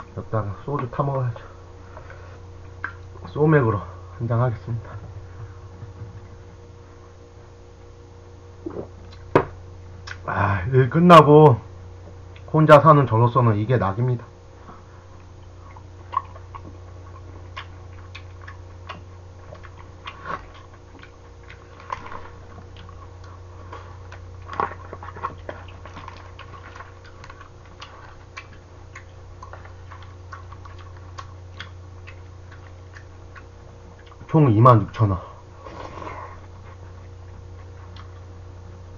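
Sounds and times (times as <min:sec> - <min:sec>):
steady low hum: 0:00.0 - 0:38.9
chewing: 0:14.7 - 0:34.4, 0:35.6 - 0:38.3.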